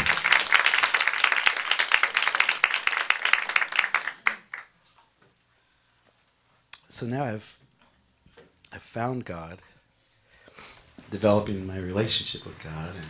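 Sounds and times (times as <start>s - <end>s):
audience applauding: 0.0s - 4.7s.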